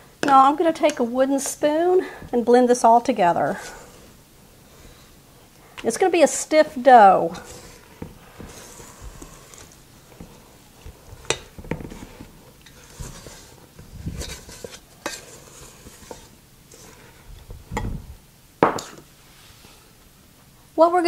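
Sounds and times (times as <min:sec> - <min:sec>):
spoon scraping dough: 0:03.4 - 0:05.2, 0:05.9 - 0:18.1.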